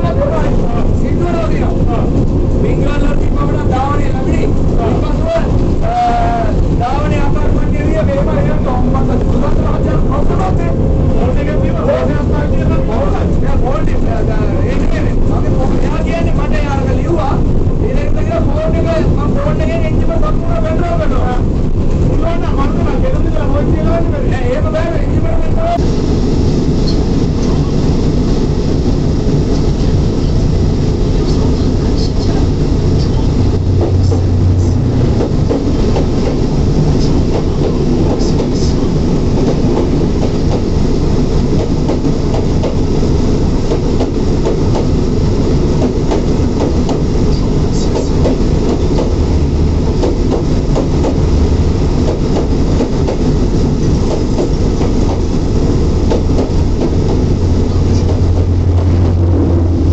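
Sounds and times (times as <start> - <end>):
locomotive engine drone: 0.0 - 59.9
train wheels clattering: 32.2 - 40.7, 41.4 - 42.9, 43.6 - 59.9.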